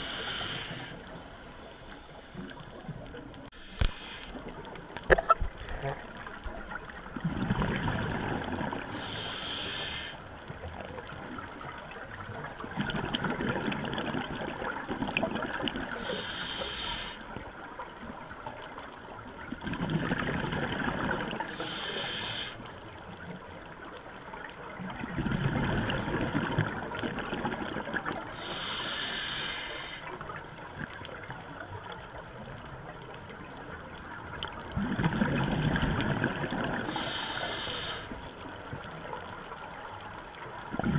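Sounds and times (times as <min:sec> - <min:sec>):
hissing inhale through regulator: 0:00.0 - 0:04.8, 0:08.8 - 0:10.4, 0:15.9 - 0:17.5, 0:21.3 - 0:22.8, 0:28.2 - 0:30.3, 0:36.7 - 0:38.4
exhaled bubbles rushing: 0:06.2 - 0:08.9, 0:12.6 - 0:15.9, 0:19.5 - 0:21.4, 0:24.9 - 0:28.3, 0:34.6 - 0:36.9, 0:40.7 - 0:40.9.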